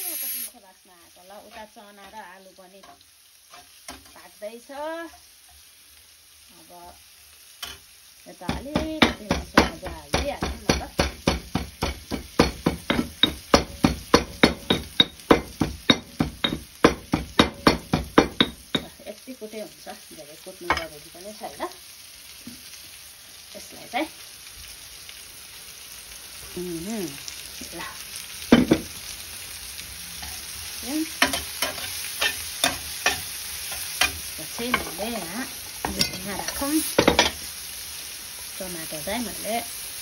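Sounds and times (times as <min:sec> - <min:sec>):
oil sizzling in a pan: 0:00.0 - 0:40.0
stone pestle pounding in mortar: 0:08.5 - 0:18.8
spatula knocking against pan: 0:08.5 - 0:18.9
metal spatula stirring in pan: 0:08.5 - 0:19.0, 0:30.2 - 0:37.5
pan clattering on pan: 0:08.6 - 0:19.0, 0:28.5 - 0:28.9, 0:31.2 - 0:37.4.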